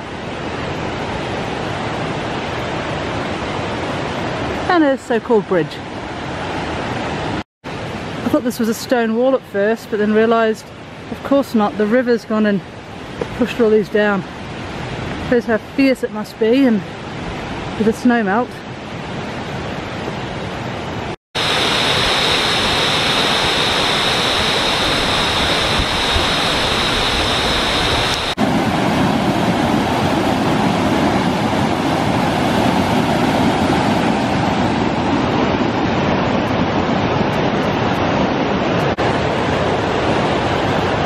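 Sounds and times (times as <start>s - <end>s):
stream rushing over boulders: 18.9s - 41.0s.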